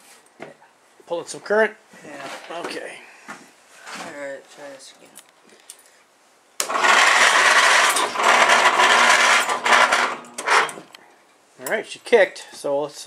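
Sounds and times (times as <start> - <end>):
engine cranking by starter: 6.6 - 10.8.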